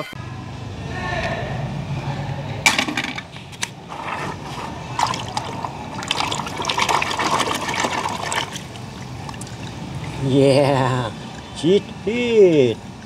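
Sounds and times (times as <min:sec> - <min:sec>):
water splashing in a tub: 0:04.0 - 0:12.0.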